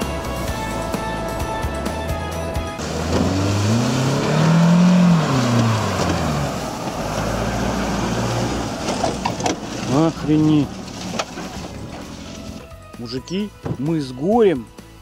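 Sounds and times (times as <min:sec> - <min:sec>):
music: 0:00.0 - 0:03.4, 0:10.2 - 0:15.0
car engine revving: 0:00.2 - 0:12.7.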